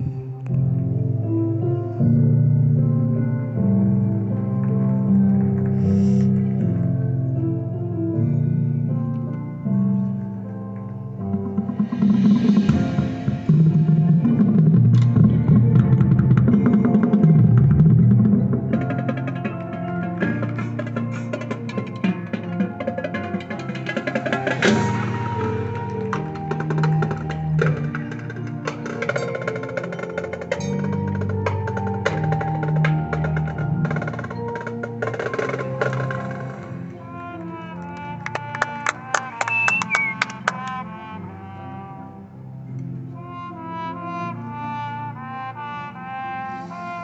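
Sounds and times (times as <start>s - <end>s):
marching band playing: 11.5s - 40.9s
sharp percussion strikes: 11.6s - 36.8s.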